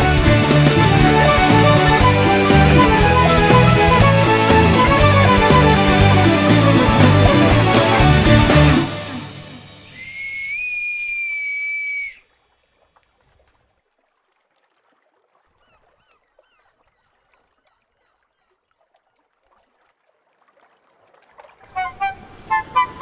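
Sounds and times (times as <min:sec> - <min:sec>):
music: 0:00.0 - 0:10.1, 0:21.7 - 0:23.0
bosun's whistle high note: 0:09.8 - 0:12.3.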